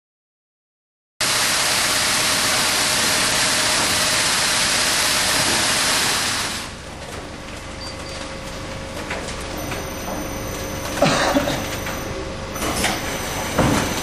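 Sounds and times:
loud steady hiss: 0:01.2 - 0:06.7.

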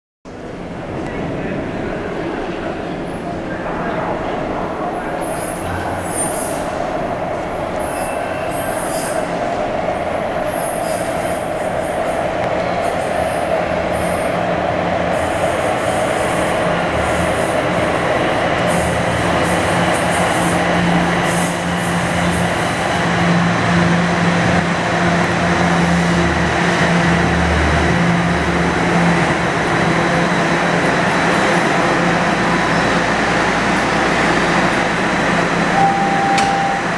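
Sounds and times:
subway train rumbling: 0:00.3 - 0:36.9
train low hum: 0:00.3 - 0:36.9
high-pitched train squeals: 0:05.2 - 0:09.4, 0:10.4 - 0:14.3, 0:15.1 - 0:17.6, 0:18.7 - 0:23.7, 0:35.7 - 0:36.9.

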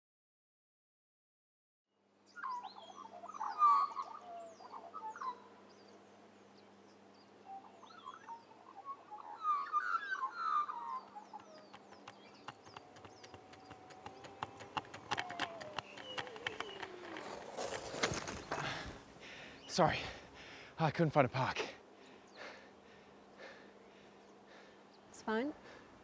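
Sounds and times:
birds chirping: 0:02.3 - 0:26.0
electric scooter whine: 0:10.6 - 0:19.6
scooter rapid clicking: 0:11.4 - 0:19.0.

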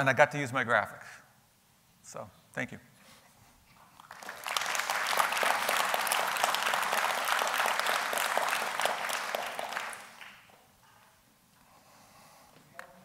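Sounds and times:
audience clapping: 0:03.8 - 0:10.7.

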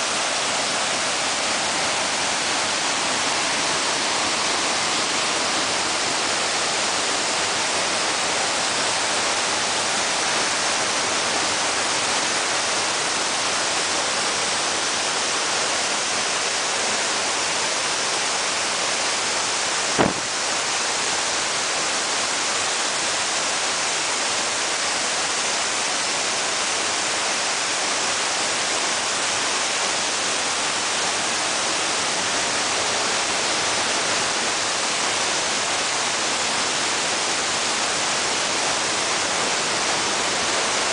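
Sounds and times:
fast-flowing creek rushing: 0:00.0 - 0:40.9
sharp knock: 0:20.0 - 0:20.3.

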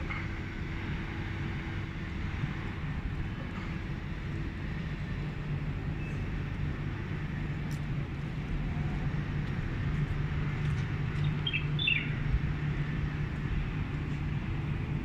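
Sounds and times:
bird chirps: 0:11.2 - 0:12.2.

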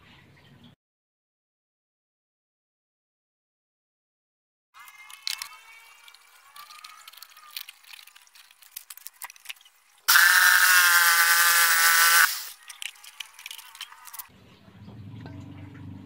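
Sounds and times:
jigsaw cutting wood: 0:10.1 - 0:12.5.

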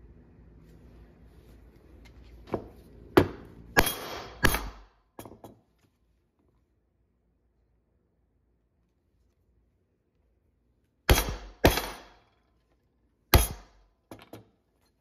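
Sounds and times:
mallet striking steel punch: 0:03.2 - 0:04.9, 0:11.1 - 0:12.2, 0:13.3 - 0:13.8.

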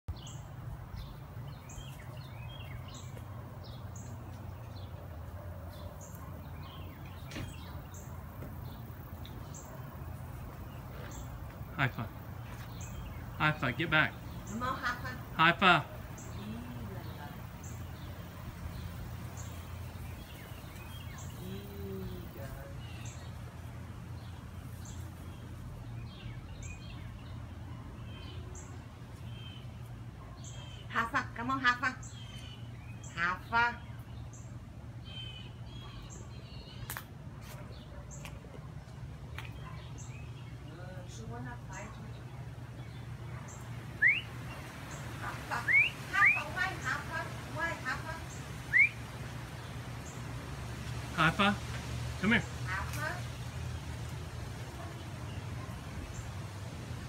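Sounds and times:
birds chirping: 0:00.0 - 0:57.0
short high bird call: 0:48.7 - 0:49.0.

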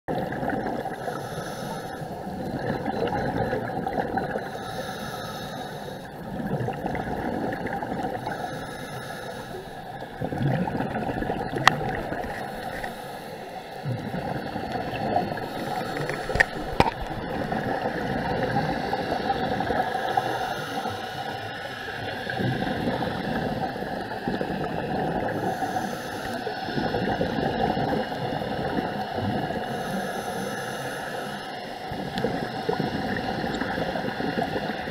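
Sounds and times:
exhaled bubbles rushing: 0:00.1 - 0:01.0, 0:02.3 - 0:04.5, 0:06.2 - 0:08.4, 0:09.8 - 0:13.0, 0:13.7 - 0:20.2, 0:22.0 - 0:25.5, 0:26.7 - 0:29.7, 0:31.8 - 0:34.9
scuba regulator breathing underwater: 0:00.7 - 0:34.9.

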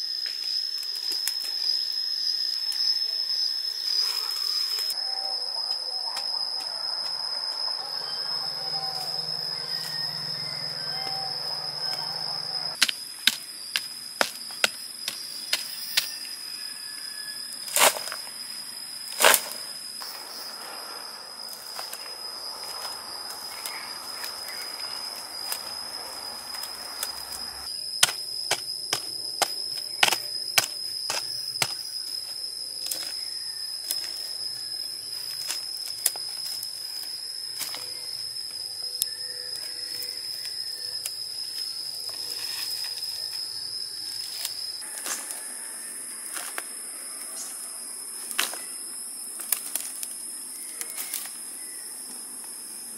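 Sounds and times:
insects droning: 0:00.0 - 0:52.9
hand digging soil clicks: 0:28.0 - 0:31.8.

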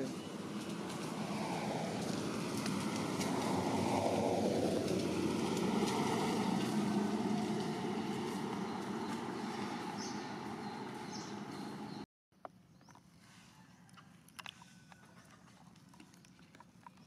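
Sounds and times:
vehicle passing: 0:00.0 - 0:12.0.

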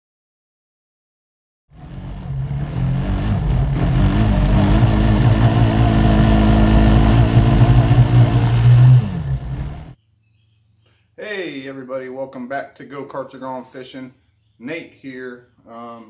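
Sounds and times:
small gasoline engine running: 0:01.7 - 0:10.0.

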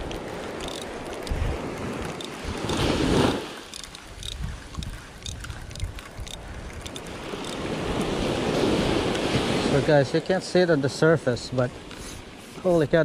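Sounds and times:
wind buffeting microphone: 0:00.0 - 0:10.0
surf washing up a beach: 0:00.0 - 0:13.0
light clicks: 0:03.7 - 0:08.1.

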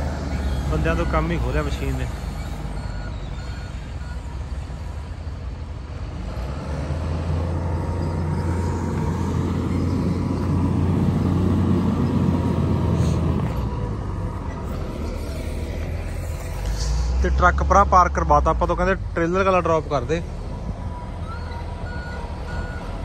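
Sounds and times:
forklift engine humming: 0:00.0 - 0:23.0.

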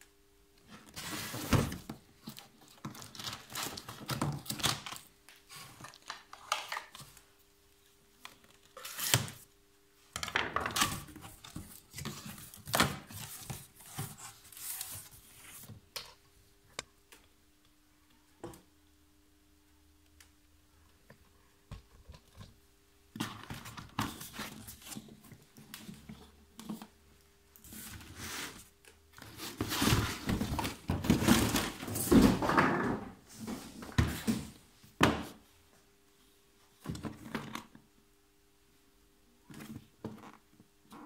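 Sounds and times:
cardboard flaps rustling and scraping: 0:00.8 - 0:02.0, 0:27.7 - 0:34.6.

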